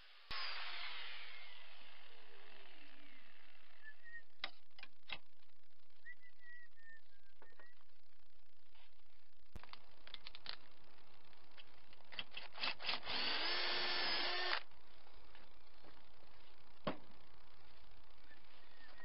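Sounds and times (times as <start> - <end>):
electric drill boring into metal: 0.3 - 3.7, 12.4 - 14.6.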